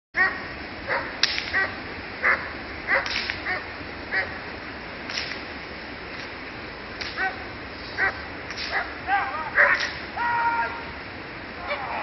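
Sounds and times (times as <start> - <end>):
sharp cracks: 1.2 - 1.7, 2.9 - 3.6, 5.0 - 5.5, 6.9 - 7.4, 8.0 - 9.0, 9.6 - 10.2.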